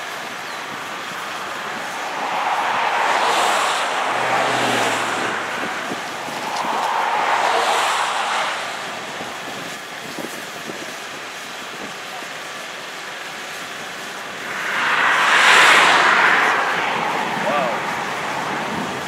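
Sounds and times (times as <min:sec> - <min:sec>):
vehicles passing at speed: 0:00.0 - 0:11.6, 0:12.6 - 0:19.0
wind-like hiss: 0:00.0 - 0:19.0.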